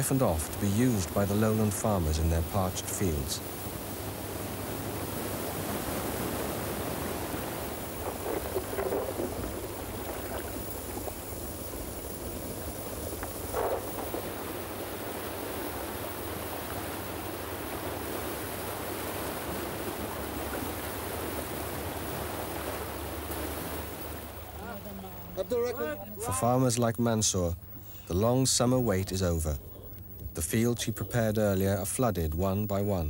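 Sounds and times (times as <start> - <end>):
floodwater rushing and churning: 0.0 - 26.3
water splashing surges: 0.0 - 26.6.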